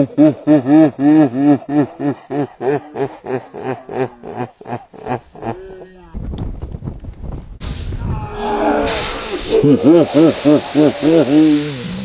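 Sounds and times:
man laughing: 0:00.0 - 0:06.0, 0:09.4 - 0:11.8.

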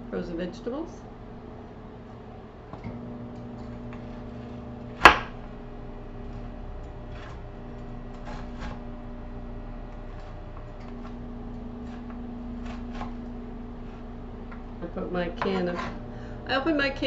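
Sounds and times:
steady low hum: 0:00.0 - 0:17.0
knife chopping on cutting board: 0:04.0 - 0:05.4, 0:08.1 - 0:08.8, 0:11.8 - 0:14.0.

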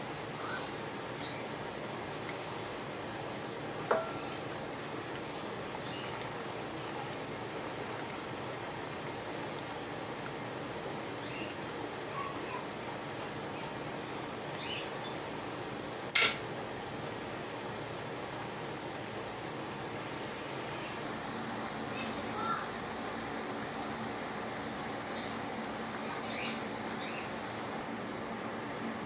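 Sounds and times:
pot bubbling on stove: 0:01.5 - 0:11.1, 0:17.6 - 0:27.8.

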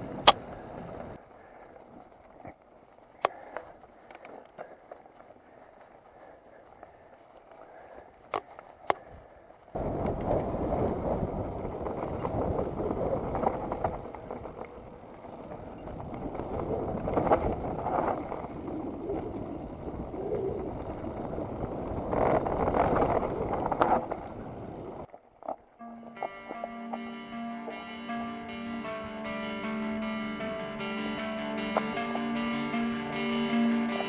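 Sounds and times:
bike tyres rumbling on gravel: 0:00.0 - 0:27.2
wind rushing on microphone: 0:09.8 - 0:14.6, 0:15.4 - 0:25.1.

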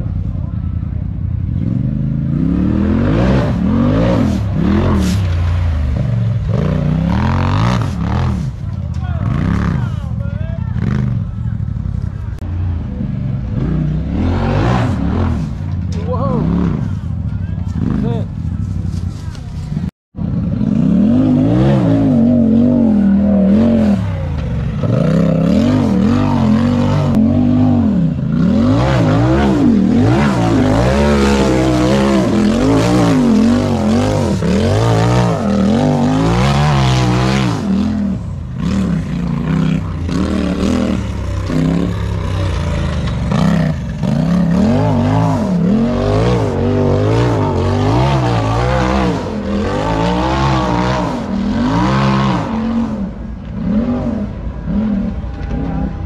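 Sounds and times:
race engine revving: 0:01.6 - 0:10.1, 0:20.3 - 0:56.0.

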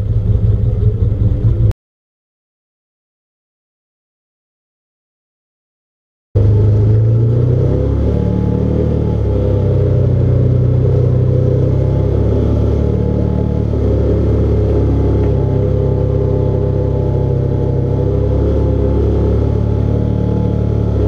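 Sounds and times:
utility vehicle engine droning: 0:00.0 - 0:01.8, 0:06.4 - 0:21.0.

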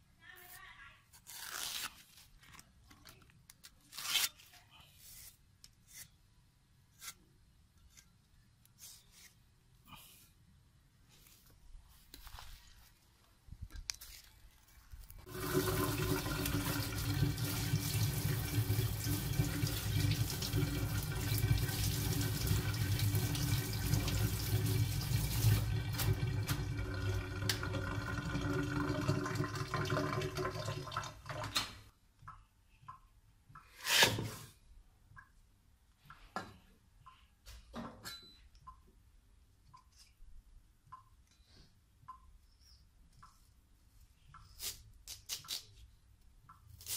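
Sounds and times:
hands washing under water: 0:15.3 - 0:31.5
tap water running into sink: 0:15.3 - 0:31.7.

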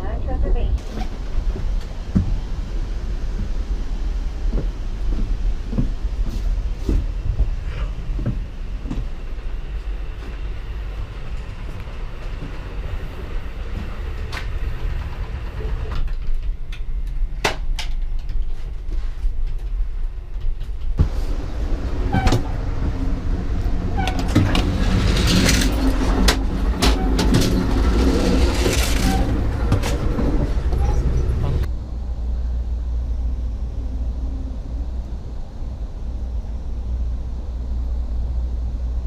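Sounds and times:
train rumbling: 0:00.0 - 0:39.0
train clatter and hiss: 0:00.8 - 0:23.0.

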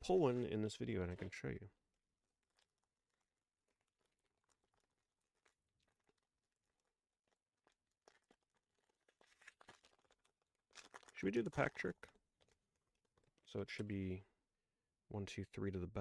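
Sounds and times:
foil wrapper crinkling and tearing: 0:02.1 - 0:13.9.

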